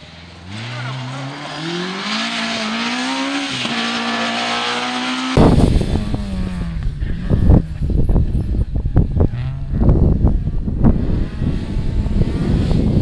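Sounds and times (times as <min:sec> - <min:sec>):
rally car engine accelerating: 0:00.0 - 0:13.0
low rumble with thumps: 0:05.4 - 0:13.0.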